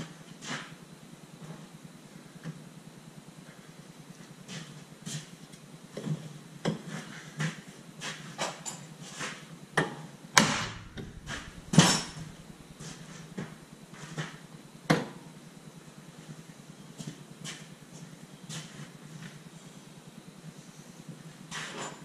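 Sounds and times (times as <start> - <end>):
metal knocks and clanks: 10.4 - 13.6.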